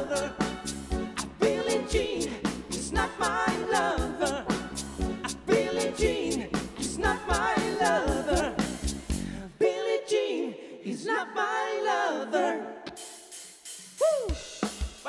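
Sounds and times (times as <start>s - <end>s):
person singing: 0.0s - 0.6s, 1.2s - 8.8s
drum kit: 0.0s - 9.4s, 12.9s - 15.0s
bass: 0.0s - 9.6s.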